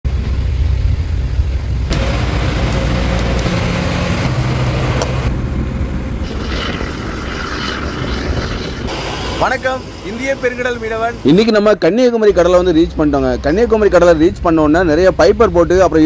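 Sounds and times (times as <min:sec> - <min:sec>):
wind: 0:00.0 - 0:16.0
sea noise: 0:00.1 - 0:11.6
boat engine rumbling: 0:00.1 - 0:16.0.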